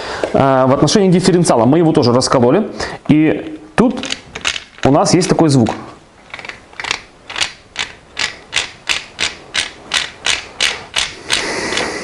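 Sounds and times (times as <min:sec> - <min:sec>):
differential gears clicking: 0:06.3 - 0:12.0.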